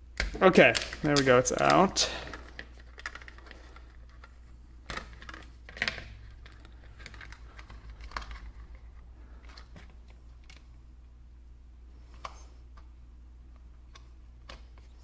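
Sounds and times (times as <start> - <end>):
low steady hum: 0.0 - 15.0
plastic parts clicking and tapping: 0.2 - 10.6.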